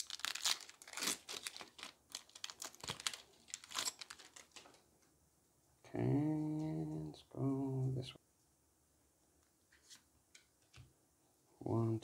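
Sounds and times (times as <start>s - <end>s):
wrapper tearing and crinkling: 0.0s - 4.8s.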